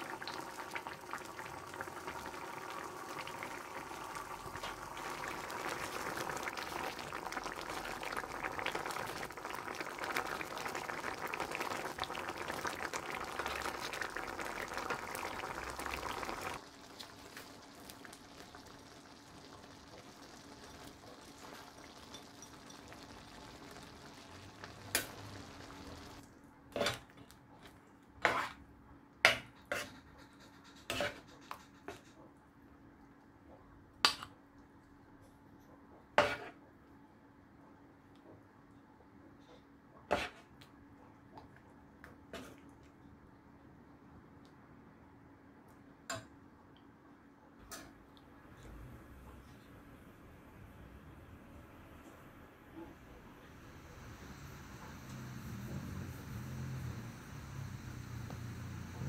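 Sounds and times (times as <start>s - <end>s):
curry bubbling and popping: 0.0s - 28.5s
faint hum: 42.8s - 59.0s.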